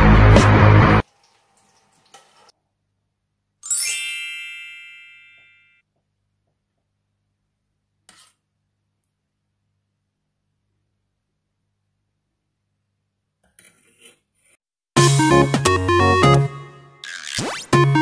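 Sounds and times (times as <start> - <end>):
background music: 0.0 - 1.0, 15.0 - 18.0
bright sparkly chime: 3.6 - 5.8.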